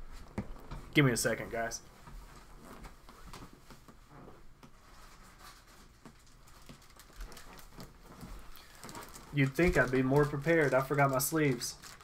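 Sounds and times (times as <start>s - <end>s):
small items clicking and rustling: 6.0s - 12.0s.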